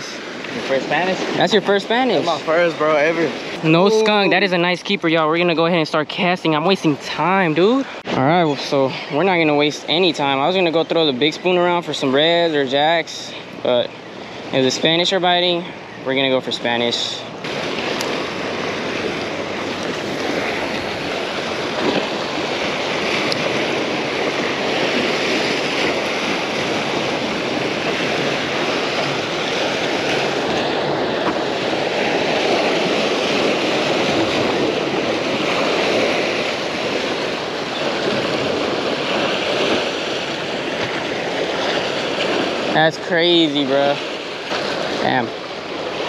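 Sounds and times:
waves washing against rocks: 16.6s - 46.0s.

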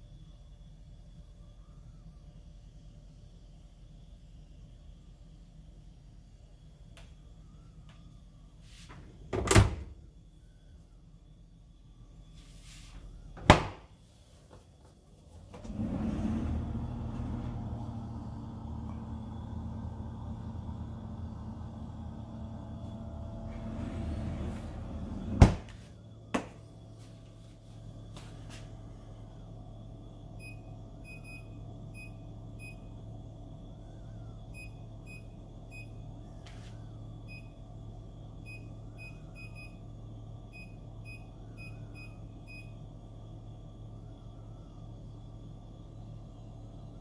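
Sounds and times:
fridge humming: 8.4s - 10.1s, 14.8s - 45.0s
freezer drawer knocking shut: 13.4s - 13.8s, 25.3s - 25.7s.

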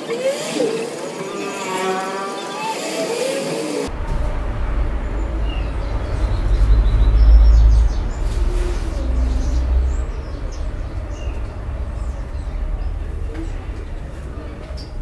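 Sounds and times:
deep rumble: 3.9s - 15.0s.

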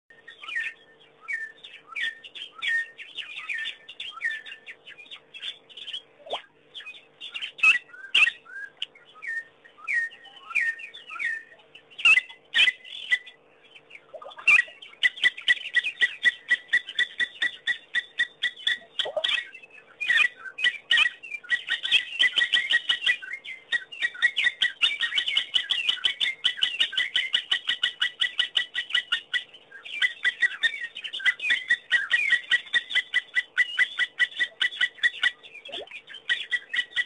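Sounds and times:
birds chirping and whistling: 0.1s - 37.0s
bird fast repeated notes: 14.0s - 23.2s.

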